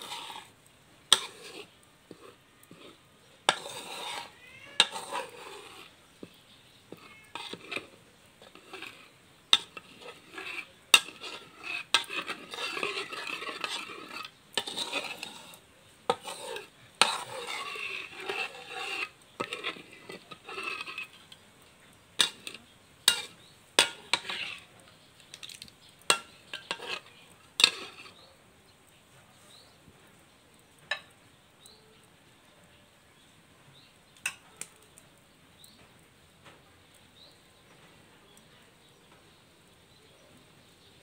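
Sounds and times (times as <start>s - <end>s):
spatula scraping paste in wok: 0.0s - 21.4s, 22.2s - 28.4s.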